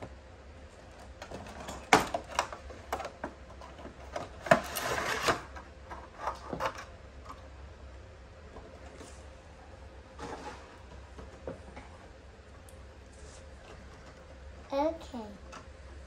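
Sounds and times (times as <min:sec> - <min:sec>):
plastic tray scraping out of box: 0:04.2 - 0:05.5, 0:10.2 - 0:10.8.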